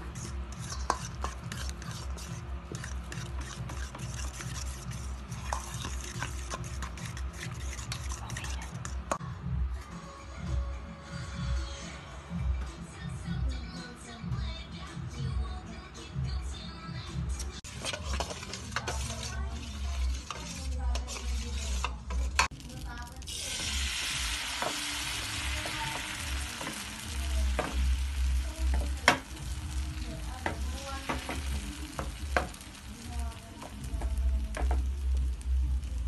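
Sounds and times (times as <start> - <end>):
batter sizzling in hot pan: 0.0 - 9.0, 17.6 - 36.0
food frying and stirred in pan: 0.0 - 9.2, 17.3 - 36.0.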